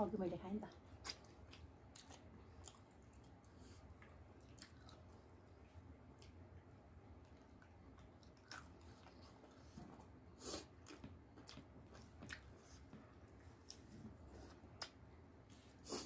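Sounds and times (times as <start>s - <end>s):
faint low hum: 0.0s - 16.0s
chewing and mouth sounds: 0.8s - 16.0s.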